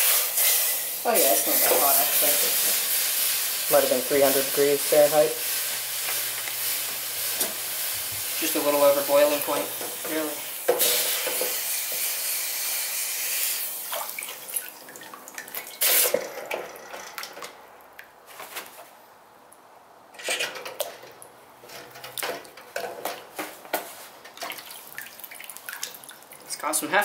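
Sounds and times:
quench hiss: 0.0 - 13.9, 15.7 - 16.4
water dripping: 13.8 - 15.8, 24.3 - 26.6
water splashing in a metal bucket: 13.8 - 17.5, 24.3 - 26.5.

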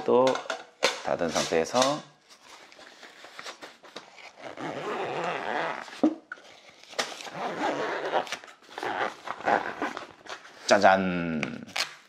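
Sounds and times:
zipper being pulled closed: 4.2 - 6.0, 7.2 - 10.2.

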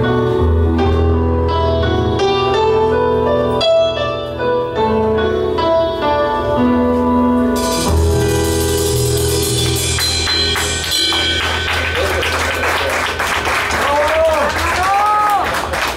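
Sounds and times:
keyboard playing piano melody: 0.0 - 15.4
held low bass notes: 6.8 - 13.2.

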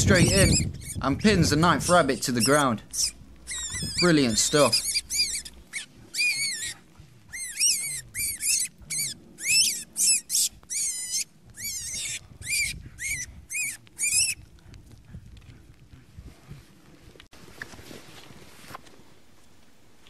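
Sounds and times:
rabbit screaming: 0.0 - 1.0, 1.9 - 14.4.

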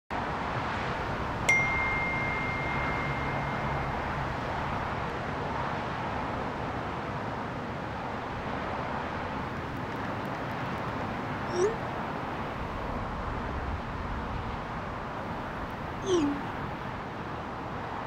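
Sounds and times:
distant city traffic hum: 0.1 - 18.0
phone message alert ding: 1.5 - 4.5.

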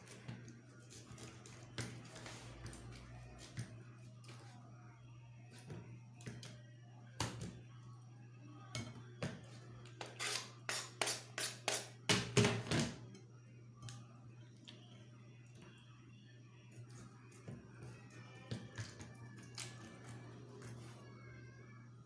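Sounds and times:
knife scraping wooden board: 10.0 - 11.9.

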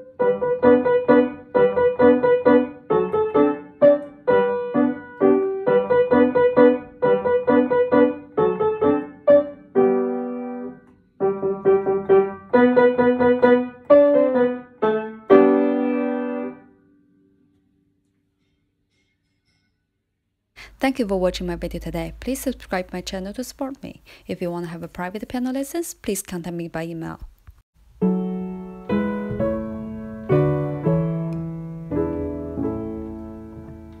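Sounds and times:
upright piano playing: 0.0 - 16.8, 28.0 - 34.0.

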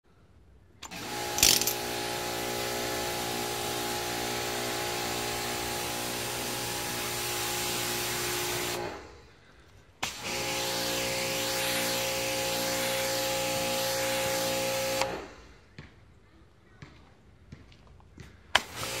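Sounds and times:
pressure washer spraying: 1.8 - 8.9, 10.0 - 15.1, 18.6 - 19.0.

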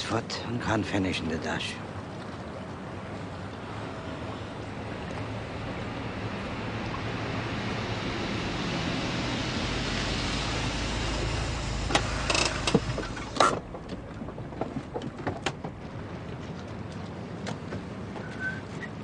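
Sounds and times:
rushing water and wind: 0.0 - 19.0
low rumble: 3.0 - 16.8
sharp knocks and clicks: 11.9 - 15.8.

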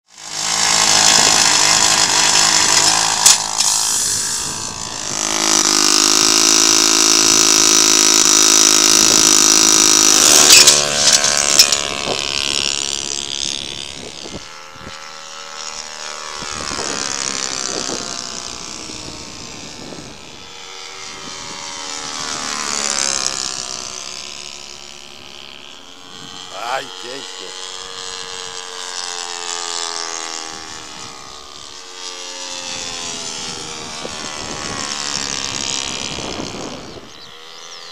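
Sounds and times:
model airplane engine: 0.0 - 37.9
sharp clicks: 2.7 - 4.0, 10.2 - 12.0.

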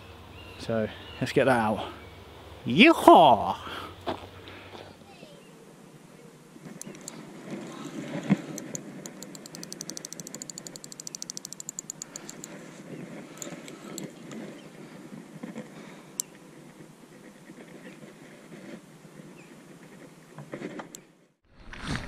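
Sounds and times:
fishing reel clicking: 6.8 - 12.5.

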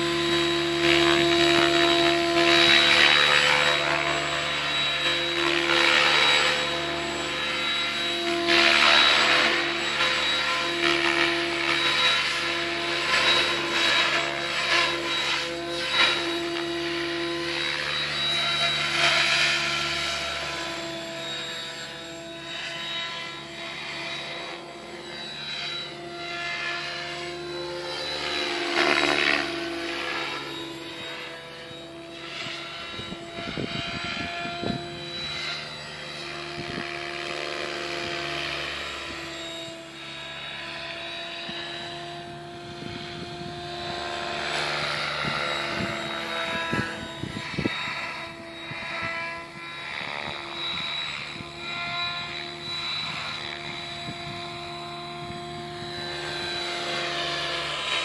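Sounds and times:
model helicopter rotor whine: 0.0 - 58.0.

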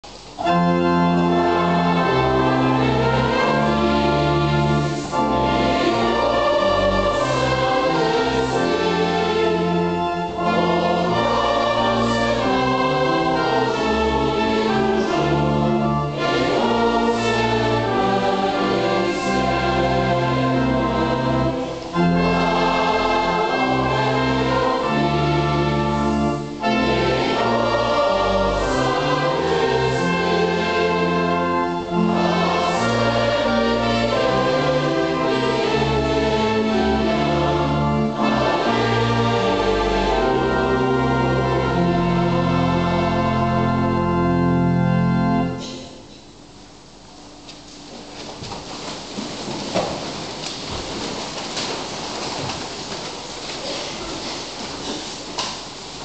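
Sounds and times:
congregation singing a hymn: 0.3 - 46.1.

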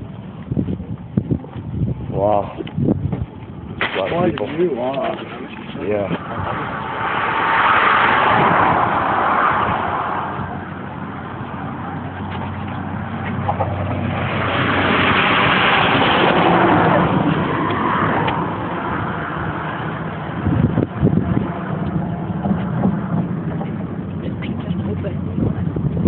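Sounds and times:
cars rushing past: 3.8 - 26.0.

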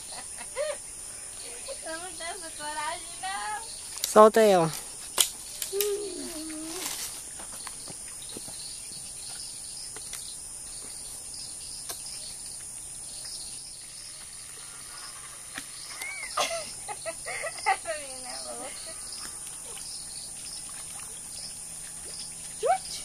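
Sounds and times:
insects chirring: 0.0 - 23.0
fish splashing into water: 19.4 - 22.6.

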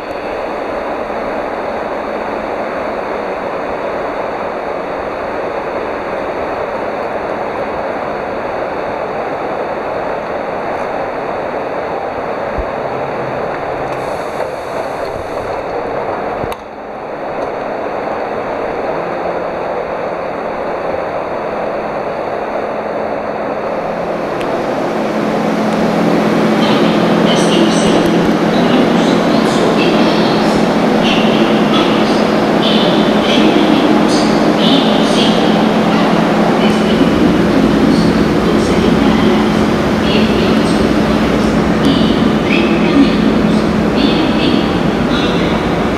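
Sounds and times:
hum and hiss of railway platform: 0.0 - 45.9.

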